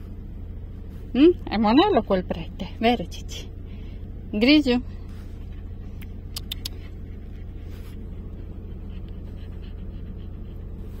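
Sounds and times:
car cabin road and engine noise: 0.0 - 11.0
dog panting: 5.0 - 11.0
sharp clicks: 6.0 - 6.9.

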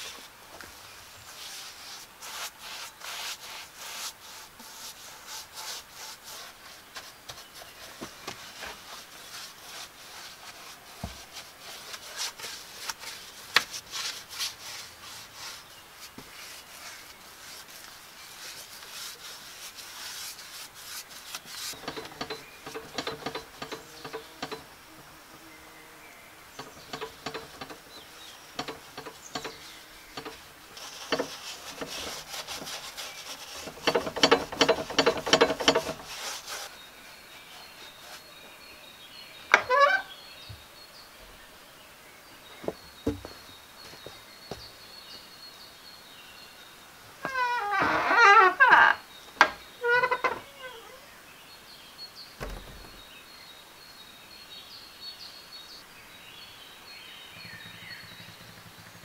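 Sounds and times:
paintbrush scratching on wood: 0.0 - 25.1, 26.6 - 38.4.

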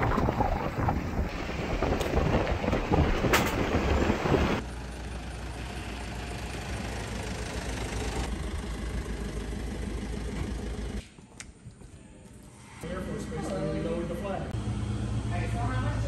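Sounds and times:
wind rumble on microphone: 0.0 - 4.6
van engine humming: 0.0 - 11.2.

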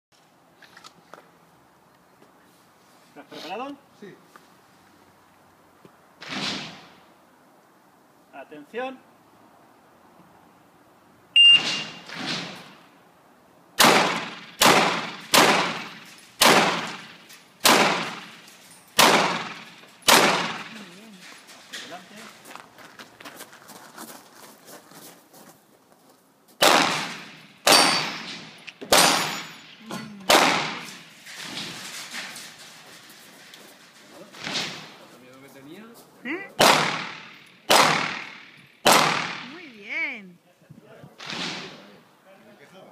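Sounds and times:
shot timer beep: 11.4 - 11.9
pistol shots echoing: 13.8 - 18.4, 19.0 - 20.9, 26.6 - 31.1, 36.6 - 39.5.

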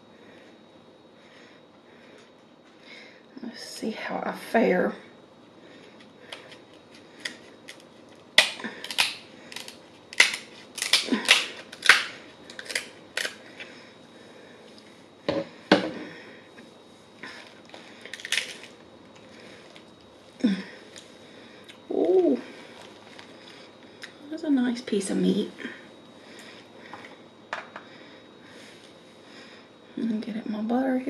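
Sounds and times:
shell cracking by hand: 7.2 - 13.4, 18.1 - 18.7
shears snipping crab shell: 8.4 - 13.4.

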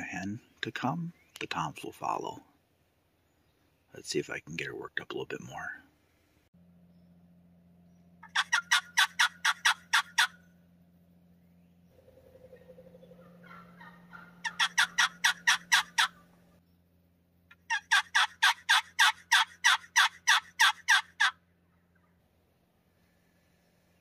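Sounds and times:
turkey yelping: 8.2 - 10.5, 12.0 - 16.4, 17.5 - 22.2.

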